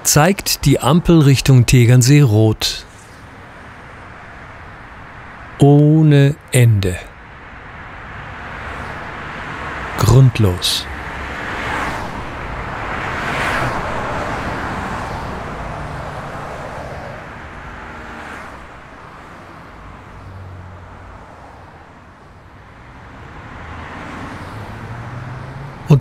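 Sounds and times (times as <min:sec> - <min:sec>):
low hum of car engines: 0:00.0 - 0:26.0
car passing on wet road: 0:07.8 - 0:09.9, 0:10.9 - 0:21.8, 0:22.9 - 0:25.8.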